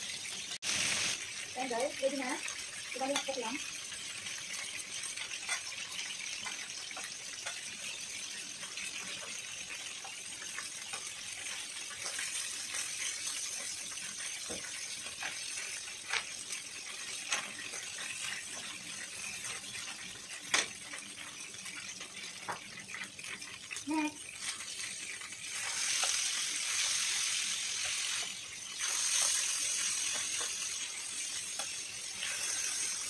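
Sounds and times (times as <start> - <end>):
chicken sizzling in oil: 0.0 - 33.0.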